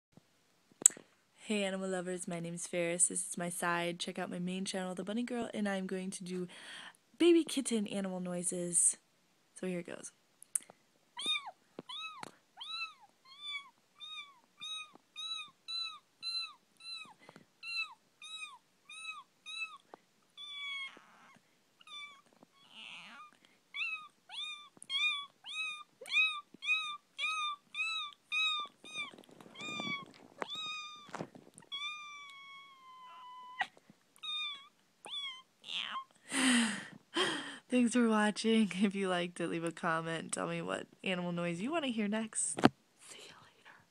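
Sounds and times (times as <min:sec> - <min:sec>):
breathing: 0:06.5 - 0:07.0, 0:17.1 - 0:17.5, 0:23.4 - 0:23.7, 0:36.2 - 0:37.7.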